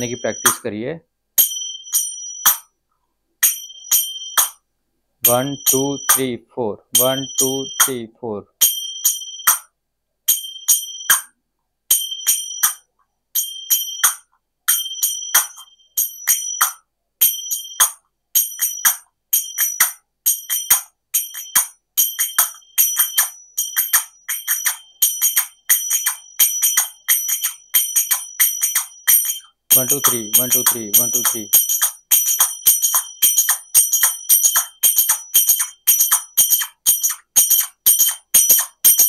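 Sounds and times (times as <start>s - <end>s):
hand cymbals playing: 0.0s - 0.6s, 3.4s - 4.6s, 5.2s - 6.3s, 7.0s - 8.0s, 11.9s - 39.0s.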